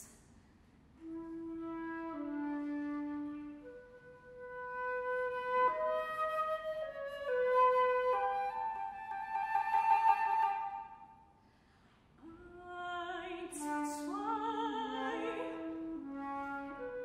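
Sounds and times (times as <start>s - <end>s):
flute playing held notes: 1.0s - 11.1s.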